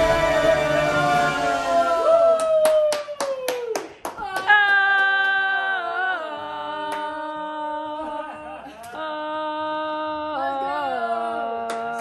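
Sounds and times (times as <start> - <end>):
person singing long note: 0.0 - 2.4
hand claps: 2.4 - 5.5, 11.6 - 12.0.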